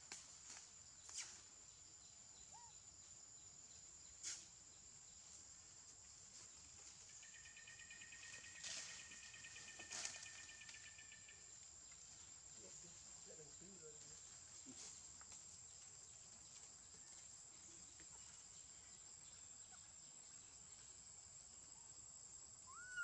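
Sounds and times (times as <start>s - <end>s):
insect pulsing trill: 7.1s - 11.4s.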